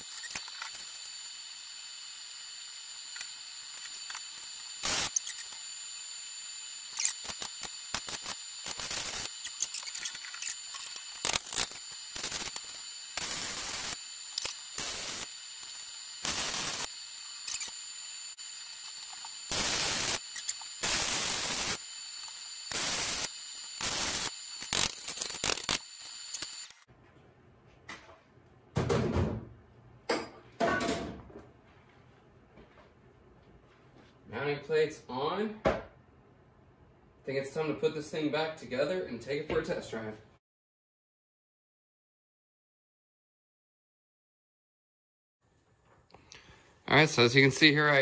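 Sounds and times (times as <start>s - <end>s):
electric welding arc bursts: 0.0s - 26.9s
steady high whine: 0.0s - 26.9s.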